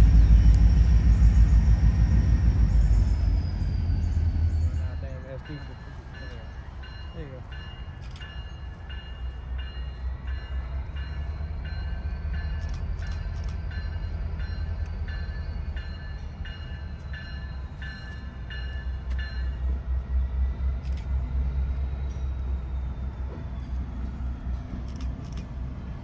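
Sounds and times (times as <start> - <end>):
passing train rumble: 0.0 - 26.0
railroad crossing bell ringing: 3.0 - 20.0.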